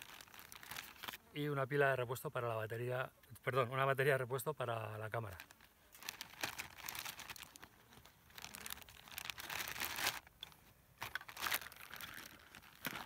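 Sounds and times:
plastic bag crinkling: 0.0s - 1.2s, 5.2s - 13.0s.

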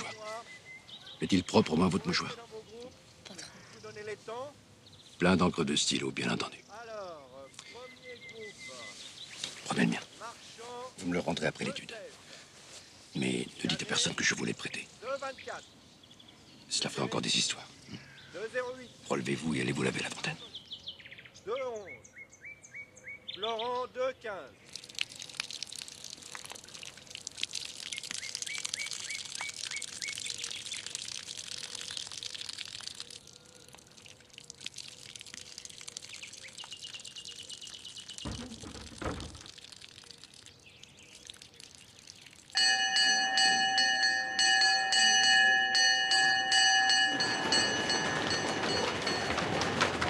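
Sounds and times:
faint birdsong: 0.0s - 25.6s, 26.4s - 49.4s
loud bell ringing: 42.6s - 50.0s.

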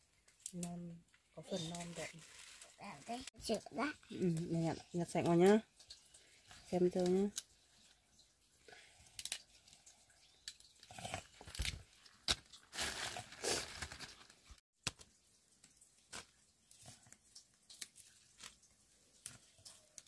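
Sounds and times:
leaves rustling: 1.3s - 5.6s, 11.5s - 14.6s.

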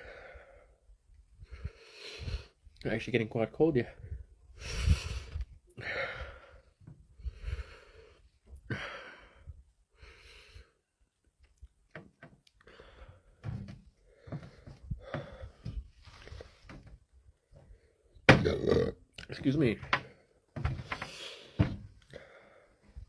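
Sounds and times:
man breathing heavily: 0.0s - 2.7s, 4.0s - 10.9s, 12.6s - 18.2s, 20.0s - 23.0s.

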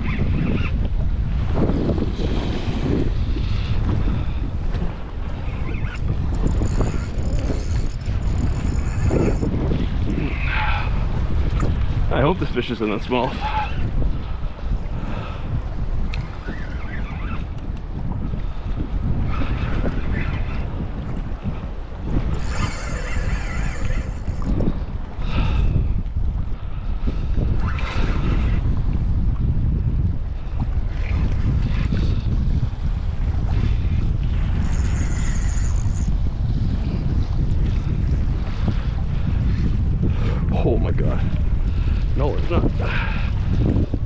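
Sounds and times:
choppy water washing: 0.0s - 44.0s
wind buffeting microphone: 0.0s - 44.0s.

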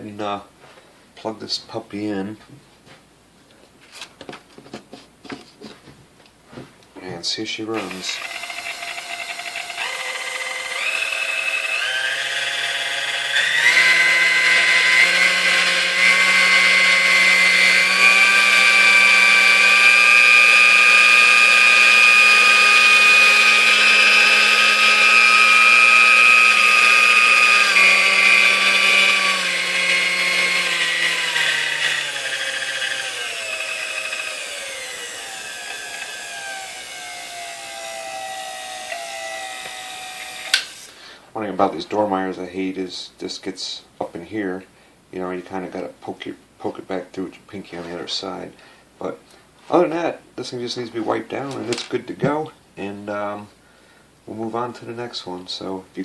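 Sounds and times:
mixer motor whining: 7.8s - 40.9s.

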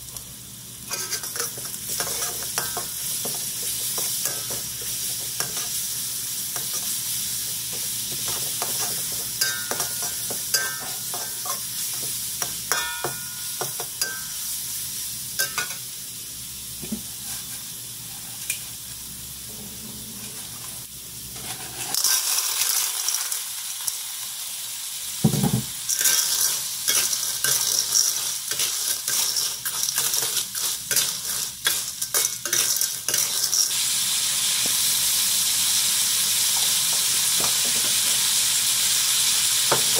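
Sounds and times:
food sizzling in oil: 0.0s - 39.9s
metal spatula scraping a wok: 0.9s - 2.8s, 21.4s - 22.2s, 25.9s - 33.8s.

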